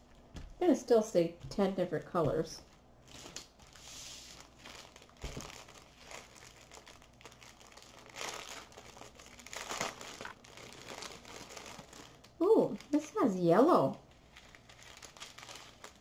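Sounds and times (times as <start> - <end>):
plastic crinkling and rustling: 2.6 - 13.2, 13.9 - 16.0.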